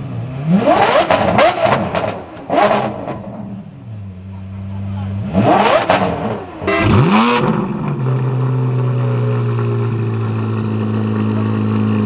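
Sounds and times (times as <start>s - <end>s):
car engine revving: 0.0s - 4.0s, 5.0s - 12.0s
car engine idling: 2.4s - 12.0s.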